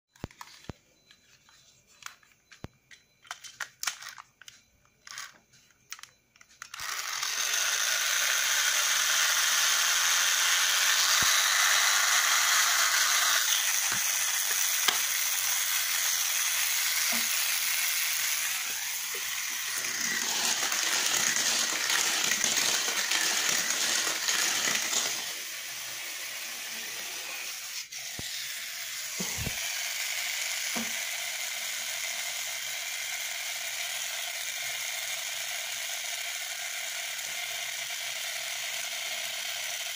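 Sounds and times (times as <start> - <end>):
rasping whir of toy gears: 0.2 - 39.9
plastic toy truck clicks: 2.0 - 7.2.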